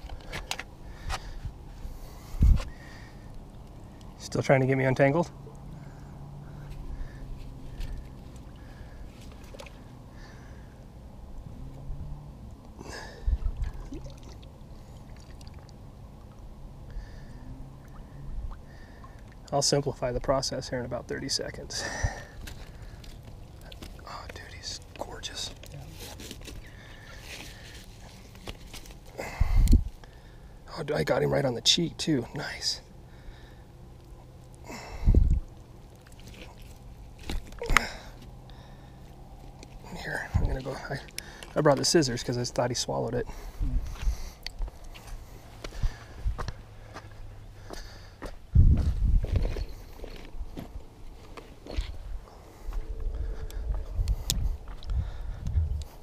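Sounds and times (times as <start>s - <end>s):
water lapping against rock: 13.1s - 16.4s, 35.2s - 38.0s.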